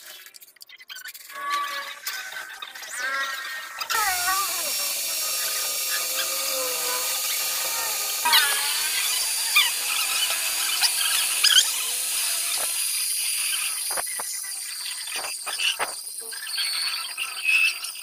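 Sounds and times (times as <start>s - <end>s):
metal cutting squeals: 0.7s - 18.0s
metal lathe whining: 3.3s - 18.0s.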